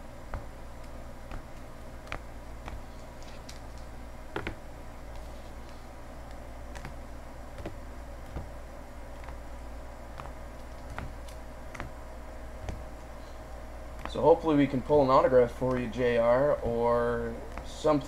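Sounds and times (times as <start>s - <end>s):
steady low hum: 0.0s - 18.0s
card packs clicking and tapping: 0.3s - 5.3s, 10.2s - 12.0s, 12.6s - 13.1s.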